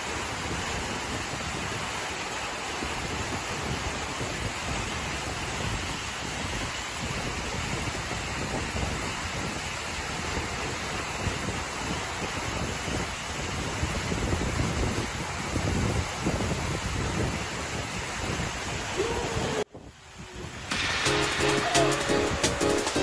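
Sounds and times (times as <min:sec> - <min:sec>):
waterfall rushing: 0:00.0 - 0:14.4, 0:20.2 - 0:23.0.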